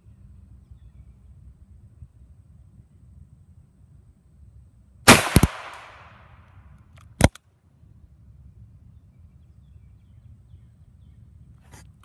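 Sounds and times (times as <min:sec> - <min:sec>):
revolver gunshot echoing: 0:05.1 - 0:06.4.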